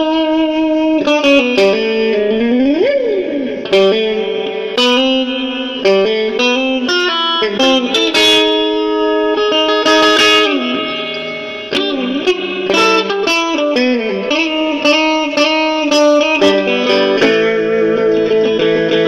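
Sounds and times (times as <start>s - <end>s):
electric guitar solo: 0.0s - 19.0s.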